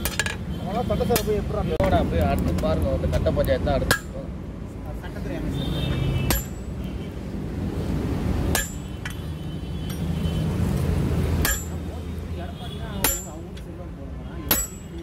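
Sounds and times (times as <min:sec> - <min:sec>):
hammer striking metal on anvil: 0:06.3 - 0:06.7, 0:08.5 - 0:09.2, 0:11.4 - 0:11.8, 0:13.0 - 0:13.5, 0:14.4 - 0:15.0.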